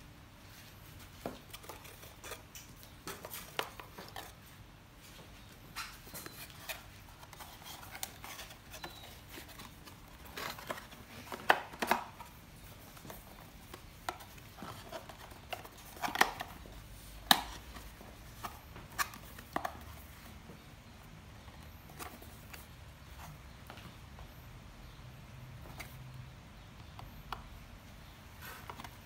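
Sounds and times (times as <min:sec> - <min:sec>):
cardboard packaging handling: 0:05.9 - 0:20.3.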